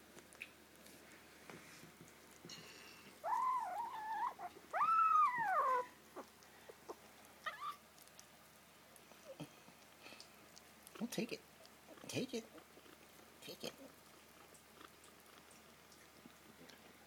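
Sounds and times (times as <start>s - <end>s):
kitten meowing: 3.2s - 5.9s.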